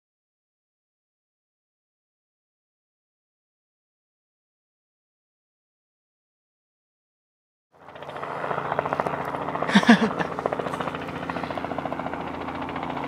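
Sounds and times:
helicopter engine and rotor: 7.7 - 13.0.

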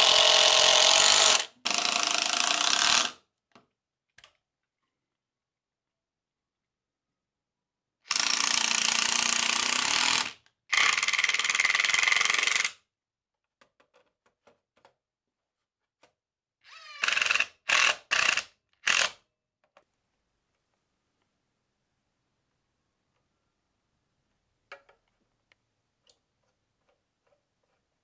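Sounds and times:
cordless drill driving screws: 0.0 - 3.2, 8.1 - 12.8, 16.7 - 19.2.

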